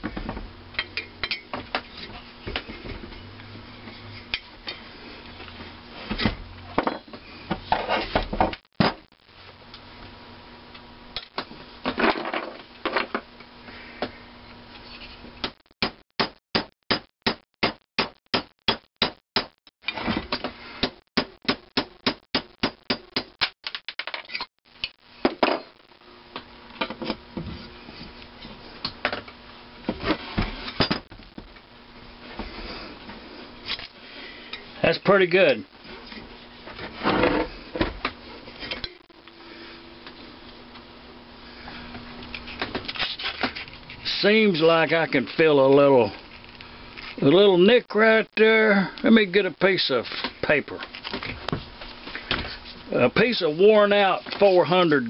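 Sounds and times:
tools knocking and clattering: 6.8 - 7.2.

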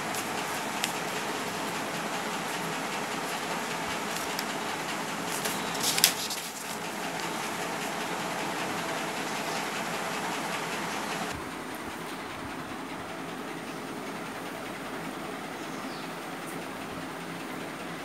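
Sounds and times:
paper sheet crackling: 0.0 - 11.3.

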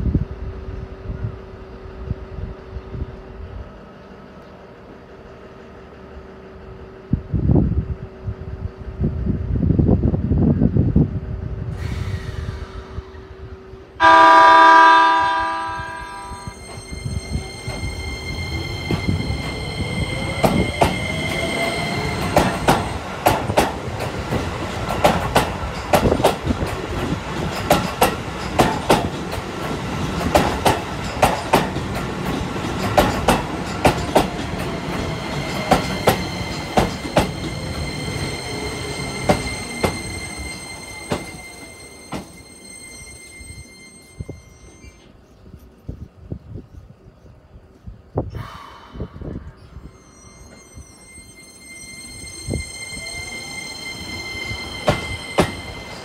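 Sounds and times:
train horn: 14.0 - 17.4
wheels clacking over rail joints: 18.6 - 42.4.

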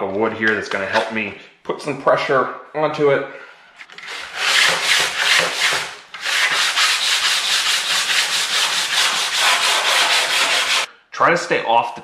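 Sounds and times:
sandpaper scraping metal: 4.0 - 10.9.

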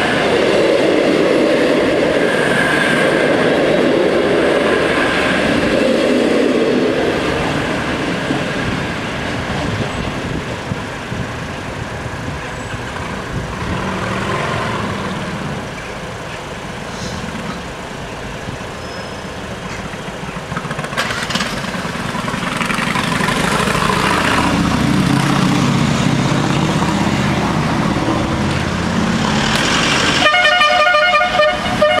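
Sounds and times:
cars crossing tracks: 0.0 - 32.0
train passing over crossing: 0.0 - 32.0
motorcycle passing: 13.3 - 15.7, 20.4 - 30.2
horn with pulsing tone: 30.2 - 32.0.

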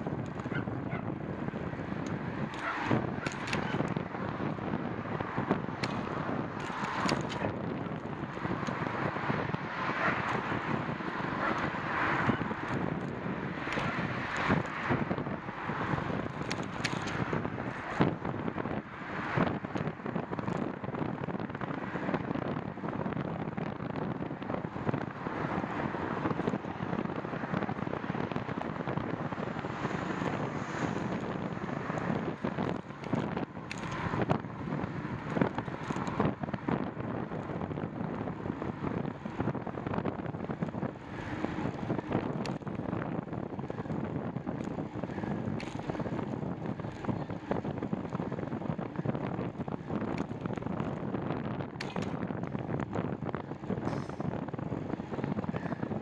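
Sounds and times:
wind on microphone: 0.0 - 56.0
bike knocks and rattles: 2.5 - 4.0, 49.8 - 53.0.

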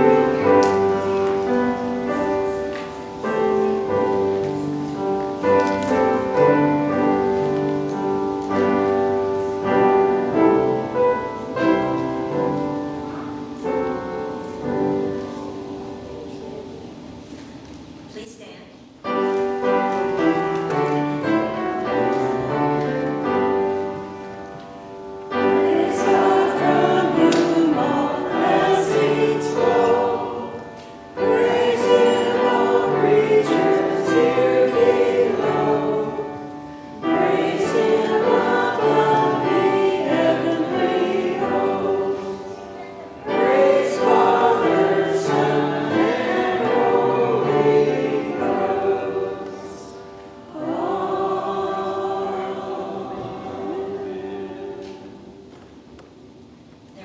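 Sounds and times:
hymn sung with accompaniment: 0.0 - 4.4, 25.3 - 55.5.

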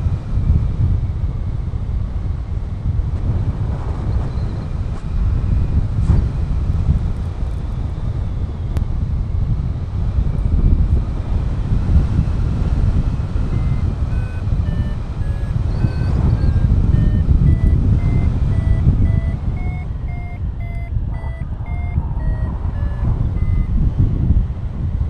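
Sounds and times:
wind rushing past microphone: 0.0 - 25.0
variometer beeping: 10.3 - 24.0.

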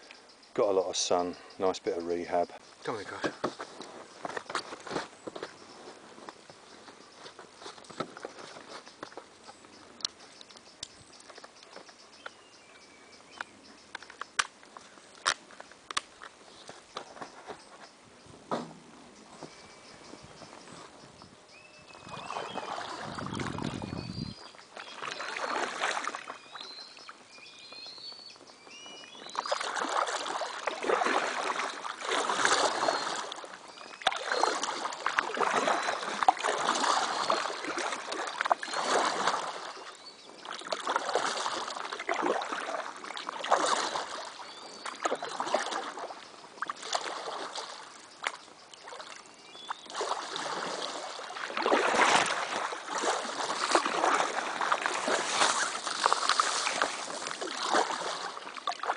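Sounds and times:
paddle strokes splashing: 0.9 - 12.4, 21.9 - 58.9
small bird chirping: 5.4 - 14.4, 19.1 - 25.6
leaves brushing a boat: 29.4 - 46.2, 49.9 - 58.9.

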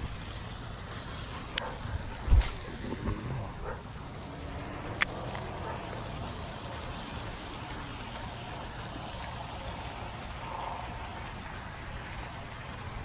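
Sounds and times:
wind buffeting microphone: 1.5 - 4.0.

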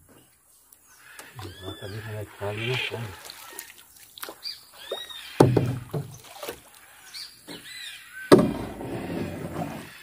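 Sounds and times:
heavy knocks on boat hull: 5.4 - 6.2, 8.3 - 8.7.

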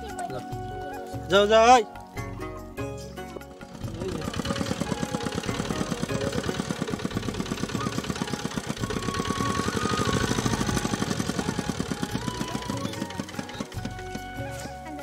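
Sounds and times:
small engine knocking steadily: 3.5 - 14.7.

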